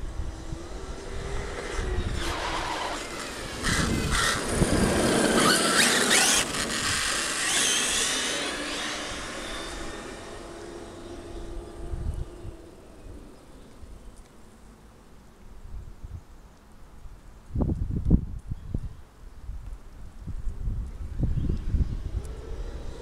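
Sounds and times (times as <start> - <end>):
radio-controlled car motor whine: 0.4 - 13.8.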